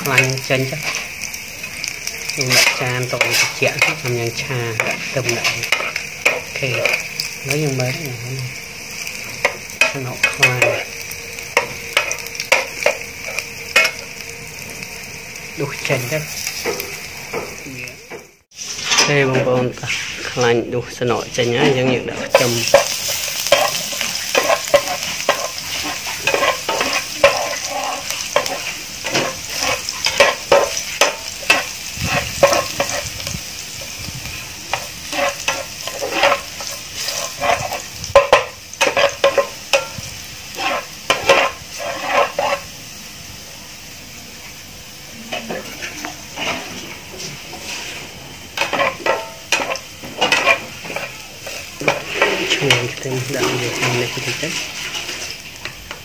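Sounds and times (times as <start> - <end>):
garlic sizzling in hot oil: 0.0 - 56.0
spatula scraping and tapping pan: 2.4 - 4.1, 4.7 - 7.3, 11.6 - 14.0, 21.6 - 33.4, 34.7 - 42.7, 48.6 - 56.0.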